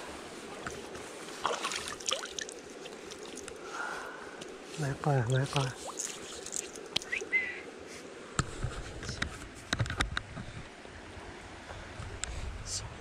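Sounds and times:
stream water running: 0.0 - 8.4.

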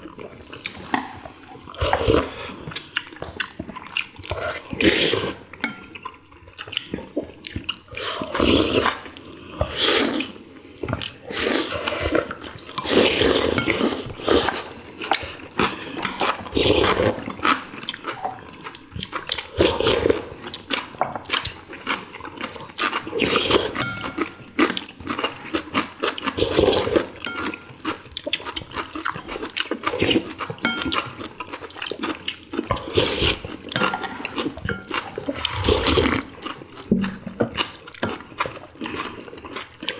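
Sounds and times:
chewing: 0.0 - 39.9
slurping broth: 0.6 - 2.8, 4.2 - 5.8, 7.9 - 10.4, 11.0 - 18.5, 32.7 - 36.5
utensils clicking on ceramic bowls: 23.7 - 24.8, 30.6 - 31.3, 32.7 - 35.4.

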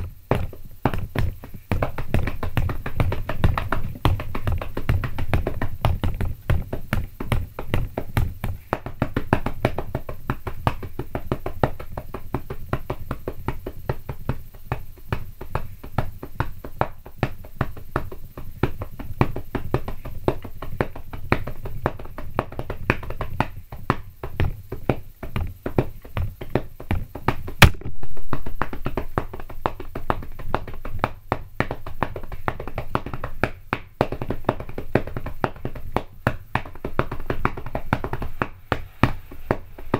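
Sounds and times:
drumming on a bed and pillows: 0.0 - 39.9
loud sharp crack: 27.6 - 28.9.

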